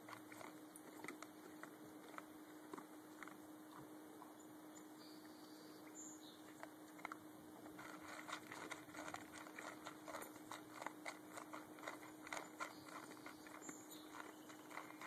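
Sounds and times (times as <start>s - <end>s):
dog chewing: 0.0s - 3.9s, 6.4s - 15.0s
kibble clicking against bowl: 7.0s - 15.0s.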